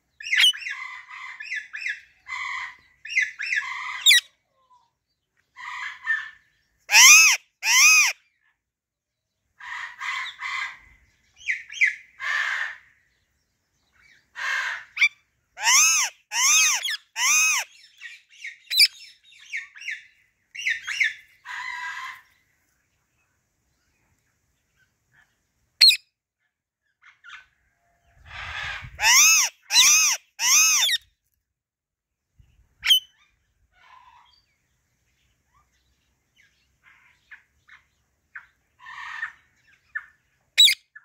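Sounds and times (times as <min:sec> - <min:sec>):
parakeet long arched calls: 0:00.2 - 0:04.2, 0:06.9 - 0:08.2, 0:11.7 - 0:12.8, 0:14.3 - 0:20.0, 0:20.6 - 0:22.3, 0:28.3 - 0:31.0, 0:38.8 - 0:39.4
parakeet chattering: 0:15.6 - 0:17.6, 0:29.0 - 0:31.0.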